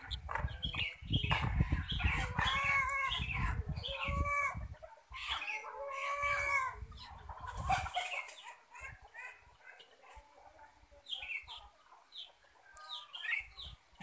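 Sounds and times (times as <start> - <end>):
chicken calling: 1.6 - 10.0.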